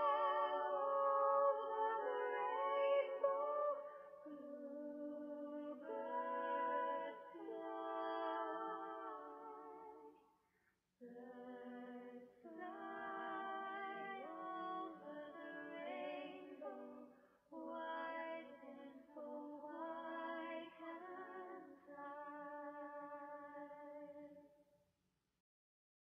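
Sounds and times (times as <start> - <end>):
woman singing: 0.0 - 10.1, 11.0 - 24.3.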